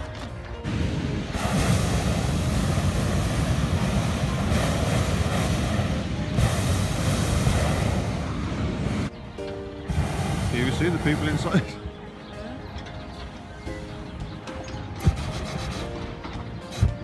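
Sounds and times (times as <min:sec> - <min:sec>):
propane burner roaring: 0:00.5 - 0:11.9.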